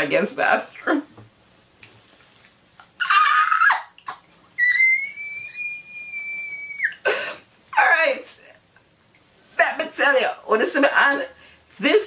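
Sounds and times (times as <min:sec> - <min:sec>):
high-pitched whistle-like squeal: 0:04.6 - 0:07.0
short shrill cry: 0:04.6 - 0:07.0.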